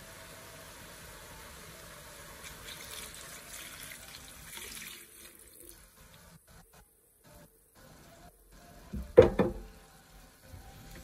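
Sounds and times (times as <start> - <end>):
frying sizzle: 0.0 - 11.0
milk pouring and splashing: 2.4 - 6.0.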